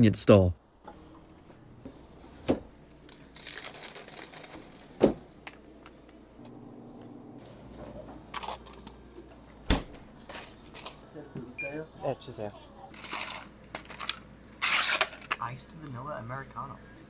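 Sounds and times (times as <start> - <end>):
plastic pouch crinkling: 2.9 - 5.0.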